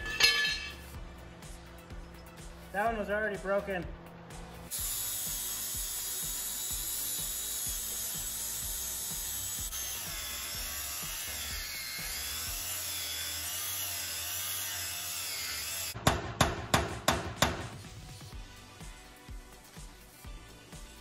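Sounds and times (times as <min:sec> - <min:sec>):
angle grinder cutting steel: 0:04.7 - 0:16.0.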